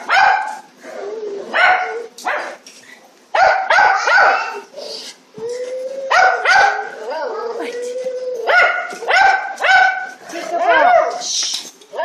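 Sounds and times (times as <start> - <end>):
dog barking: 0.0 - 0.6, 1.5 - 2.6, 3.4 - 4.6, 6.1 - 6.9, 8.5 - 10.1.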